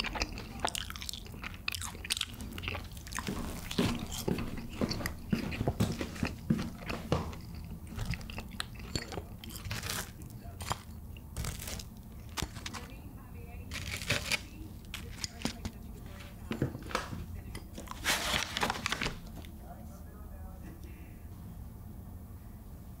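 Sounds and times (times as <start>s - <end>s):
crunchy bites and chewing: 0.0s - 12.9s, 13.7s - 15.8s.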